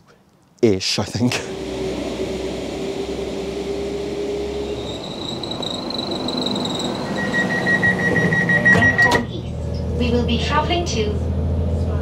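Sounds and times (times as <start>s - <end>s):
thin high whine: 1.4s - 9.2s
steady high tone: 1.5s - 9.3s
train running noise: 1.5s - 12.0s.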